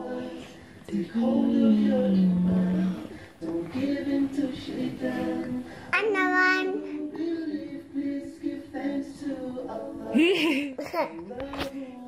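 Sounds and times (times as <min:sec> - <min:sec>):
child singing: 0:05.9 - 0:07.8, 0:10.1 - 0:11.7.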